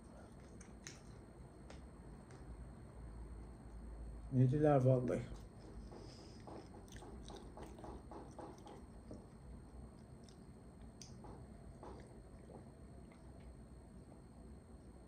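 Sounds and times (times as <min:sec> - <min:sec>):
chewing meat: 0:00.0 - 0:01.3, 0:05.7 - 0:14.2
wet mouth clicks: 0:10.2 - 0:11.2.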